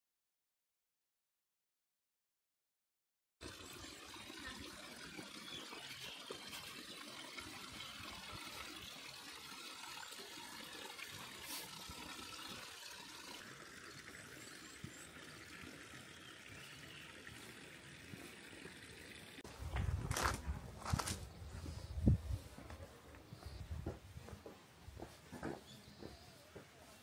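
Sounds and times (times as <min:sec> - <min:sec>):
faint water trickling: 0:03.4 - 0:24.4.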